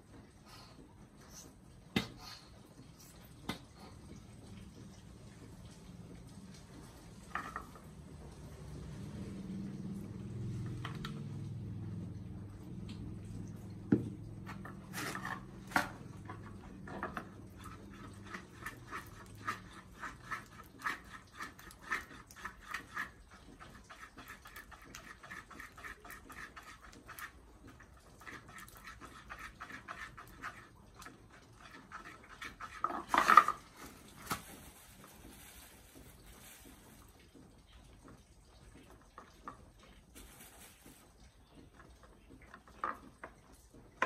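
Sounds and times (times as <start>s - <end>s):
stick scraping a dish: 14.3s - 27.5s, 28.2s - 33.7s.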